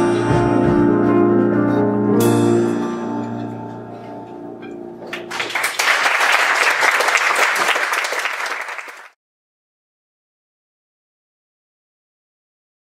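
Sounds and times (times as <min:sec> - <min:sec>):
audience applauding: 0:05.1 - 0:09.2.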